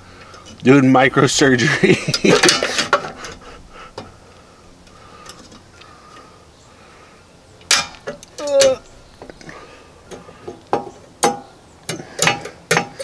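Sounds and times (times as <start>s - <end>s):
small metal tools clinking: 7.7s - 9.5s.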